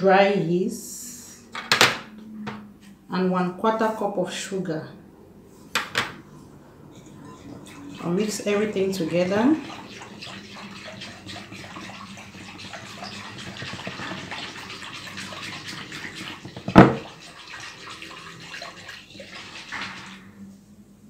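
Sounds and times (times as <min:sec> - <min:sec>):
liquid swishing: 0:06.2 - 0:20.8.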